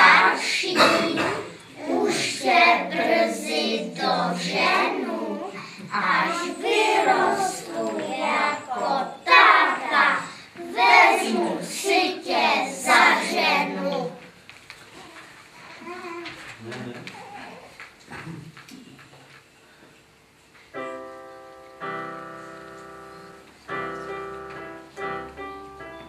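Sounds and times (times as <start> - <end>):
children singing: 0.0 - 14.2.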